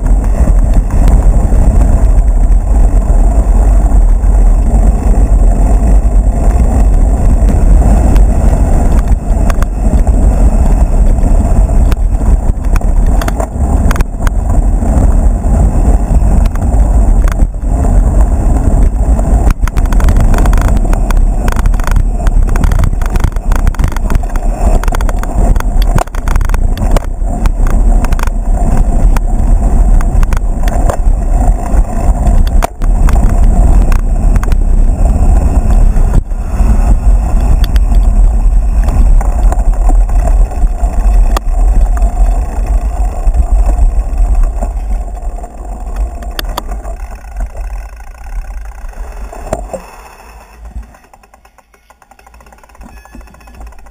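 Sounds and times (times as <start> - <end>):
bike rattling over rough ground: 0.0 - 53.9
wind rumble on microphone: 0.0 - 53.9.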